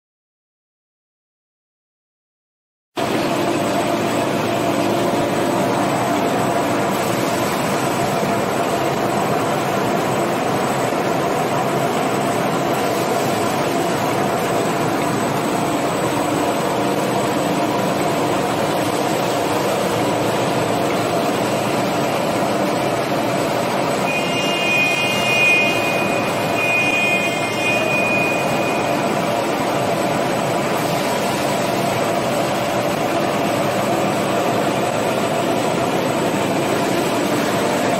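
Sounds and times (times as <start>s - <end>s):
steady machine noise: 3.0s - 37.9s
high tone: 24.0s - 30.2s.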